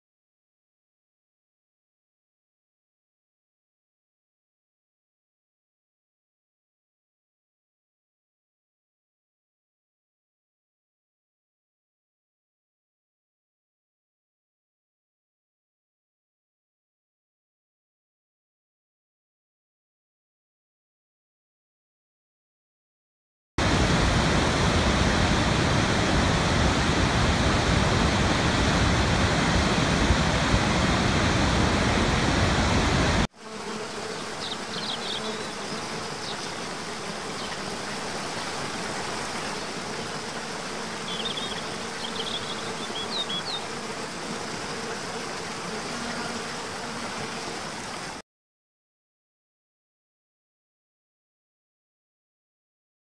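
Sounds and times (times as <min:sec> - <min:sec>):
large waterfall rushing: 0:23.6 - 0:33.3
small cascade rushing: 0:23.6 - 0:33.3, 0:43.5 - 0:48.2.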